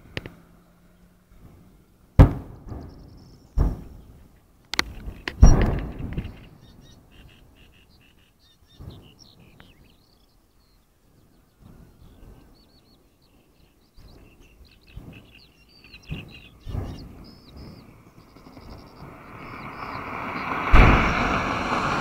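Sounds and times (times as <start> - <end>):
birds chirping: 0.0 - 22.0
distant explosions: 16.0 - 22.0.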